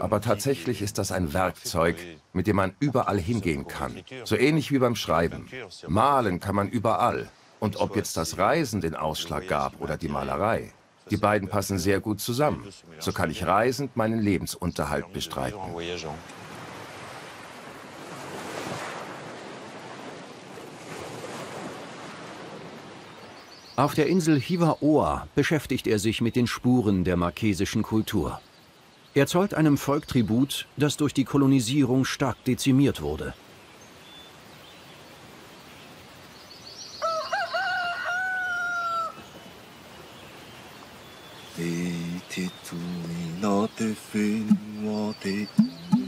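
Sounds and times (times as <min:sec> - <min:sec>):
sea surf washing in: 0:16.3 - 0:23.2
rooster crowing: 0:37.0 - 0:39.2.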